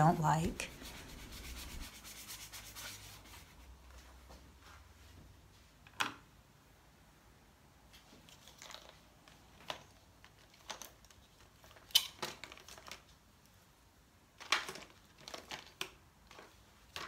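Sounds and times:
brush scraping on paper: 0:00.5 - 0:03.7.

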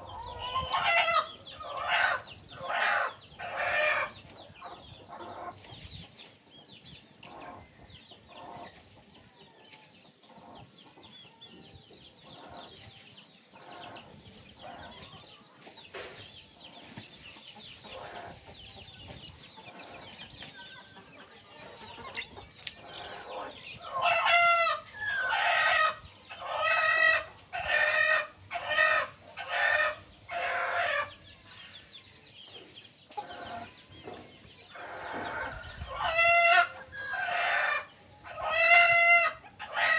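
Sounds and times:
chicken loud repeated calls: 0:00.0 - 0:05.5, 0:21.0 - 0:31.2, 0:34.7 - 0:39.9
chickens clucking softly: 0:00.0 - 0:39.9
chicks peeping: 0:00.0 - 0:39.9.

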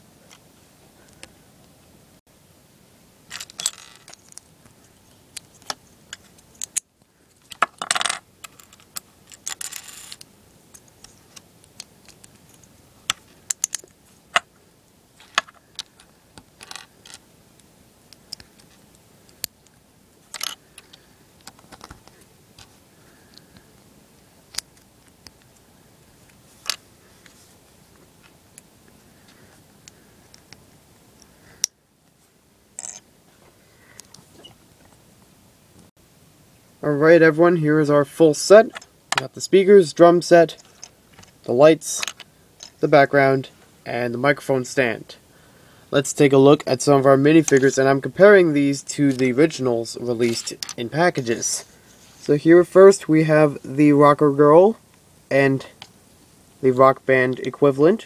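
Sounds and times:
pieces rattling and scraping: 0:03.3 - 0:04.4, 0:07.4 - 0:10.2, 0:16.6 - 0:17.2, 0:20.3 - 0:22.2.

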